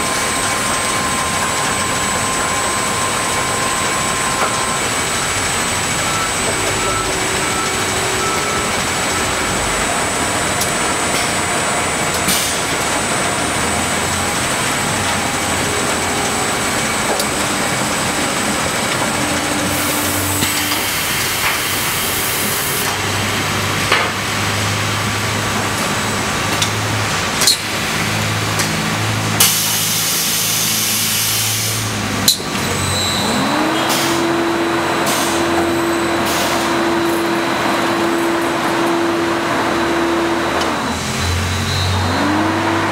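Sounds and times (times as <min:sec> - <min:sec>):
conveyor machinery din: 0:00.0 - 0:42.9
hiss: 0:29.4 - 0:32.0.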